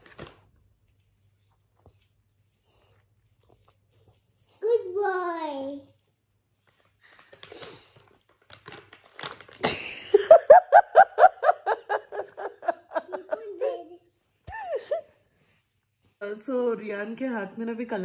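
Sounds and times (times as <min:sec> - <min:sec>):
plastic packet crinkling: 0:07.0 - 0:10.0
person giggling: 0:09.6 - 0:15.2.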